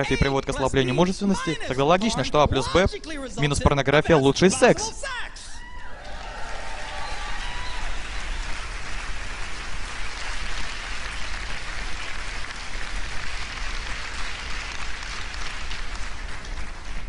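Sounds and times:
audience applauding: 5.8s - 17.0s.

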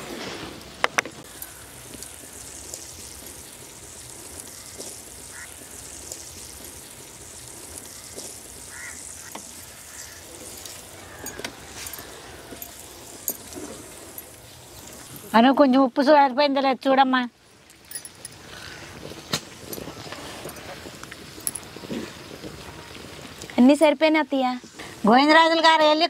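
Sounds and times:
animal calls: 7.9s - 12.6s.

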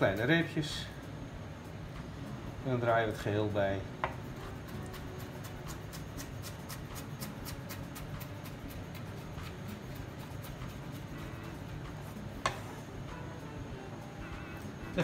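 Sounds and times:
knife mincing on cutting board: 4.4s - 12.7s.

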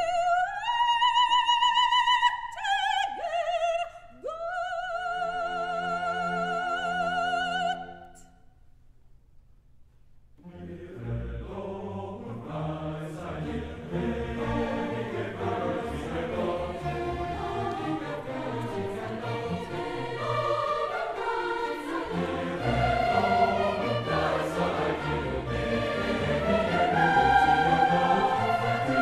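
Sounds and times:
choral background music: 4.7s - 8.2s, 10.4s - 29.0s.

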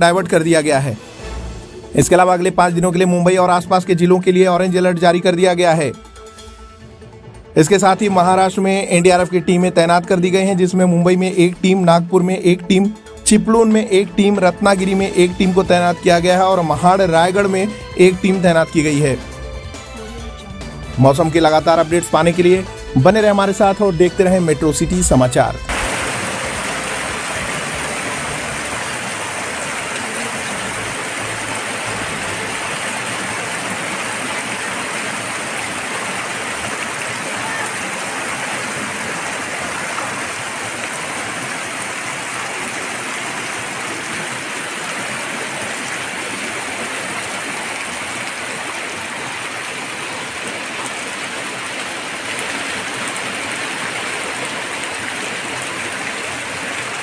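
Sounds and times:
heavy rain pouring: 0.0s - 5.9s, 25.7s - 57.0s
floodwater rushing: 0.0s - 6.2s, 7.0s - 57.0s.

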